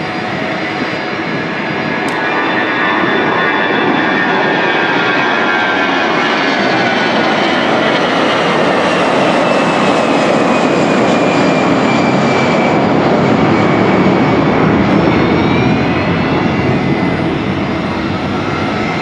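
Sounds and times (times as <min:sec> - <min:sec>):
high turbine whine: 0:00.0 - 0:19.0
jet engine roar: 0:00.0 - 0:19.0.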